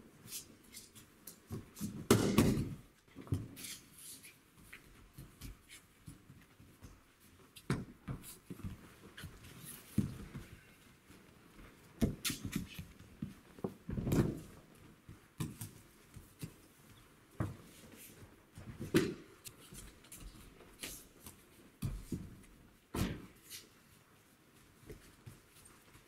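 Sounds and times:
bodies thudding onto mats: 21.8s - 23.4s.

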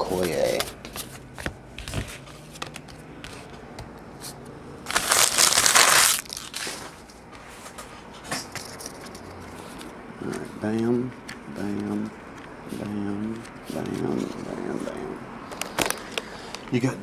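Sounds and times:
cards clicking and tapping: 0.2s - 3.9s
plastic wrapper tearing and crinkling: 4.9s - 6.9s.

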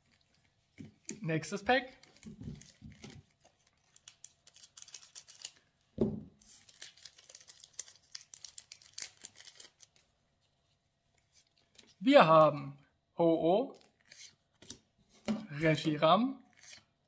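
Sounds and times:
foil wrapper crinkling: 3.4s - 5.7s, 6.4s - 10.1s.

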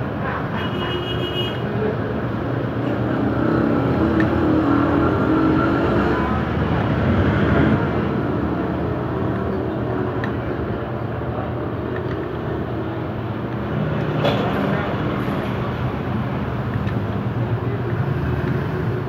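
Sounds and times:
traffic noise: 0.0s - 19.0s.

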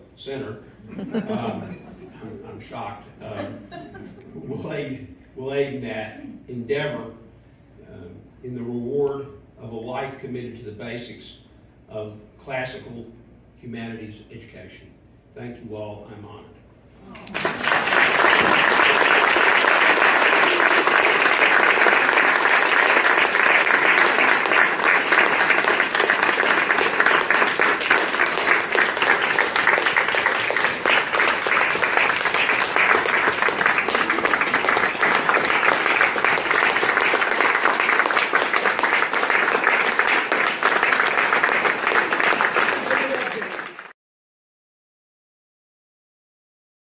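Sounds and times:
audience applauding: 17.2s - 44.0s.

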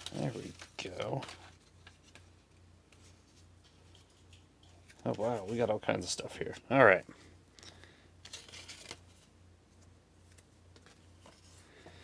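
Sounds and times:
paper crinkling: 8.2s - 9.3s
paper rustling: 8.2s - 12.0s.

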